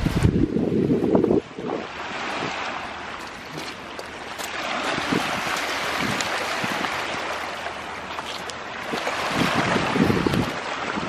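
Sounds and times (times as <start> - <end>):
waves washing onto pebbly shore: 0.0 - 11.0
footsteps on gravel: 3.2 - 7.0, 8.1 - 9.2.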